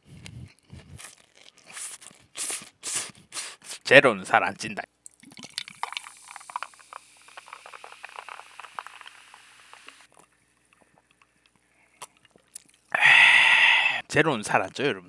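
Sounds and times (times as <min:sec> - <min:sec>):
tonic water fizzing in glass: 0:05.1 - 0:10.1.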